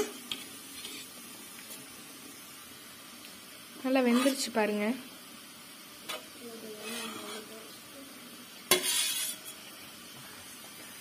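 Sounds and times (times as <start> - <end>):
metal skimmer scraping a pot: 4.0 - 4.5, 6.8 - 7.5, 8.7 - 9.6.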